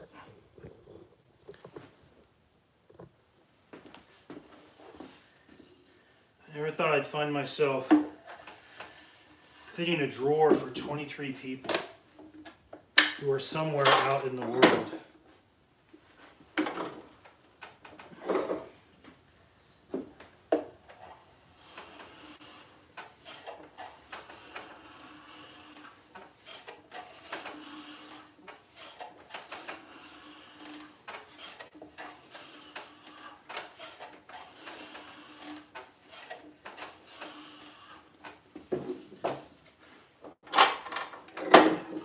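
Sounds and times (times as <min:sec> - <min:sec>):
hand plane shaving wood: 0:06.5 - 0:11.6, 0:20.6 - 0:38.8.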